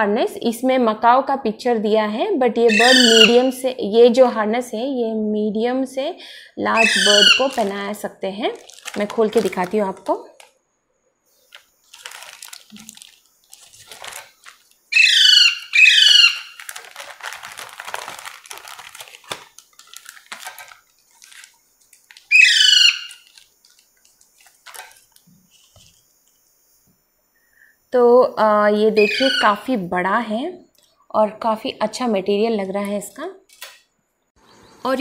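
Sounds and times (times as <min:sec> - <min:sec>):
parrot squawking: 0:02.7 - 0:03.5, 0:06.8 - 0:07.7, 0:14.9 - 0:16.8, 0:22.3 - 0:23.3, 0:29.0 - 0:29.5
plastic packet crinkling: 0:06.8 - 0:10.6, 0:11.4 - 0:26.0.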